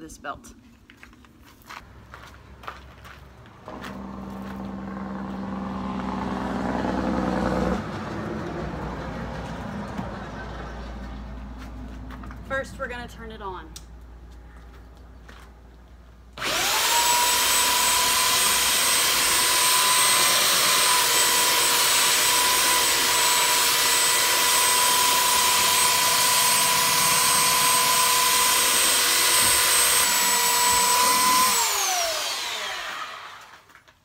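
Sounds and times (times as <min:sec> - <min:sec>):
belt sander motor whine: 0:16.4 - 0:33.7.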